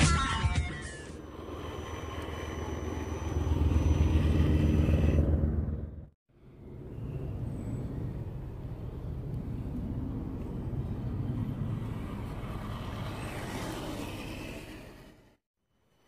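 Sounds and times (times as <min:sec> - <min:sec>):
electric motor and gears whining: 0:00.0 - 0:06.2, 0:09.7 - 0:15.4.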